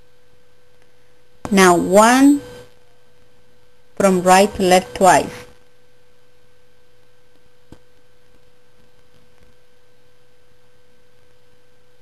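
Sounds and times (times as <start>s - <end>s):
steady electrical hum: 0.0s - 12.0s.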